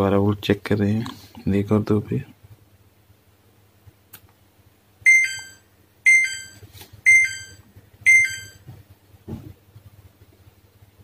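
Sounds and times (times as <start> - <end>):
two-note error beeps: 5.1 - 8.6.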